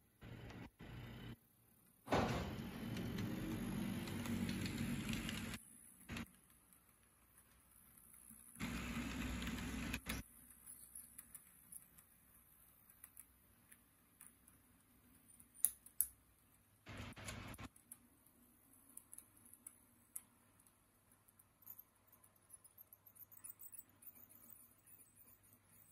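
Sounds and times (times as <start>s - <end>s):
model train wheels clicking: 2.5s - 16.1s.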